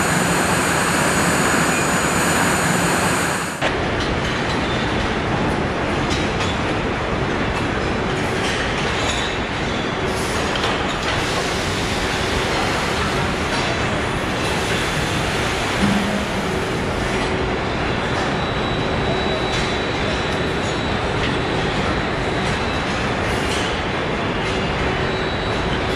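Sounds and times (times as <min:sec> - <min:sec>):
conveyors rumbling and clattering: 0:00.0 - 0:25.9
brief low tone: 0:15.8 - 0:17.1.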